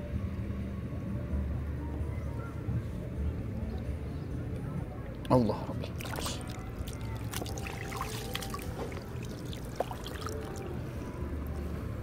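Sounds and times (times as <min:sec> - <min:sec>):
water trickling and dripping: 0:05.8 - 0:11.0
hand splashing in water: 0:05.9 - 0:10.8.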